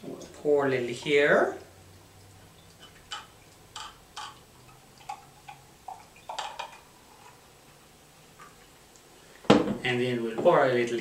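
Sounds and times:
beer pouring into glass: 0.1 - 7.5.

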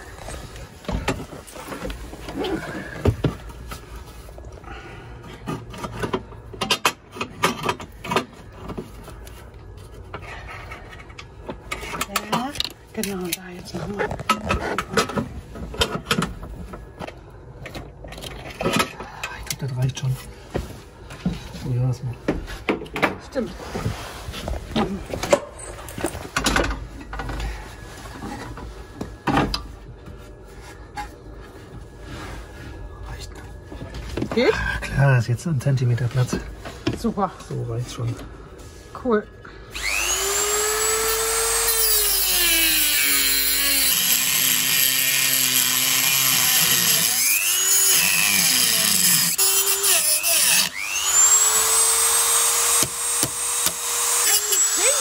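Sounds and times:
rotary tool grinding steel: 39.7 - 55.0.

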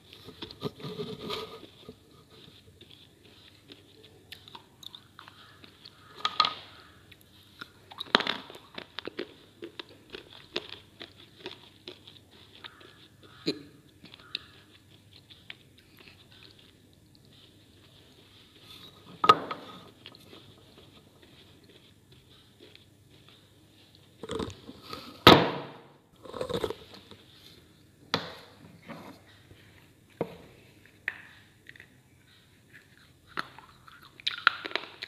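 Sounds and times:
slate being bitten and chewed: 0.1 - 25.1, 31.3 - 35.0.

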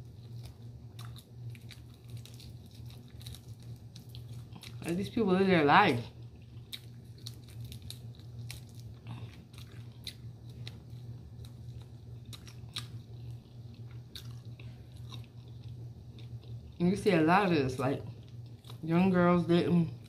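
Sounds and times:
person chewing food: 0.0 - 4.9, 6.1 - 16.8, 18.0 - 18.8
steady low hum: 0.0 - 20.0.

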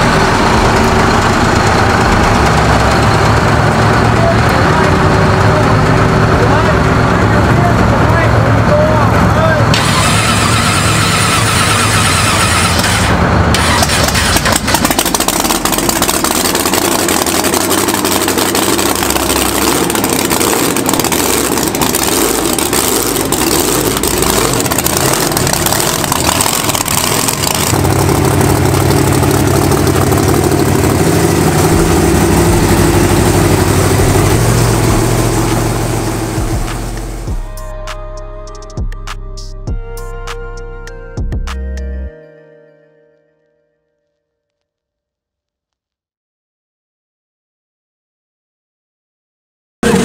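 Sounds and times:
heavy engines running unevenly: 0.0 - 37.6.

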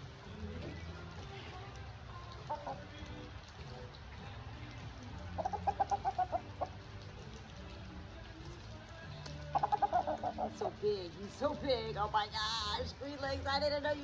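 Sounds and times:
rooster clucking: 9.6 - 10.6.

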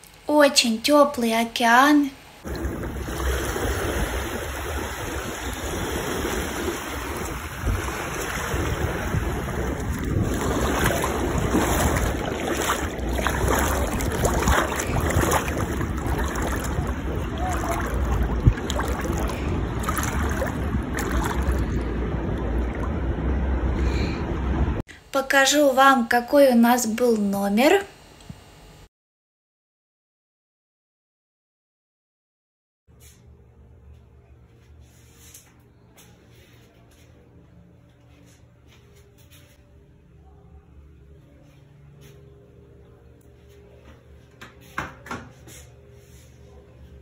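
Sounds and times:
ocean surf washing onto beach: 2.5 - 23.7
wind buffeting microphone: 2.5 - 24.8.

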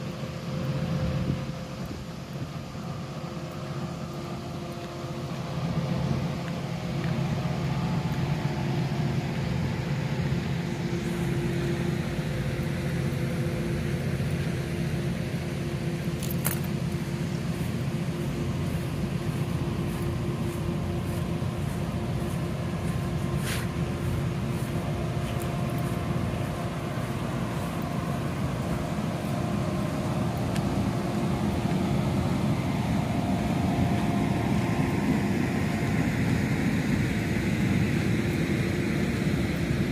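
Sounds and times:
low engine hum: 0.0 - 39.9.

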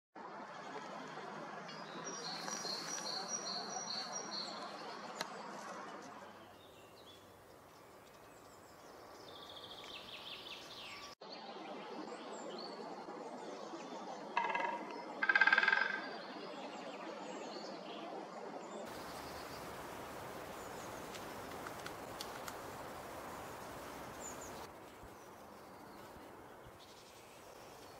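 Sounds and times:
steady background noise: 18.2 - 27.9
birds calling: 18.9 - 27.9.

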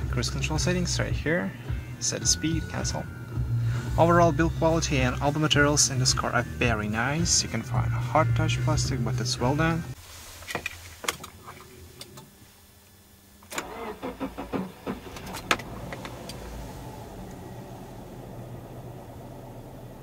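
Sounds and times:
car engine cranking and idling: 13.4 - 20.0.

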